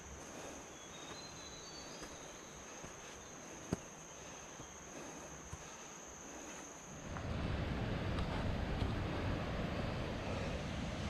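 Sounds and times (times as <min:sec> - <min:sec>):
faint chirps: 0:00.0 - 0:07.1
insects droning: 0:00.0 - 0:11.0.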